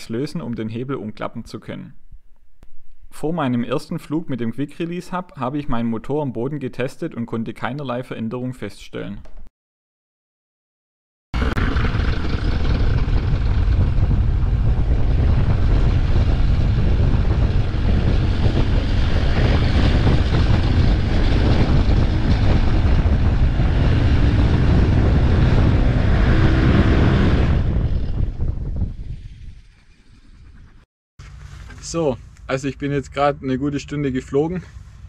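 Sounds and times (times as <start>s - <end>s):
paramotor engine and propeller running: 11.4s - 32.4s
propeller winding down: 11.4s - 32.7s.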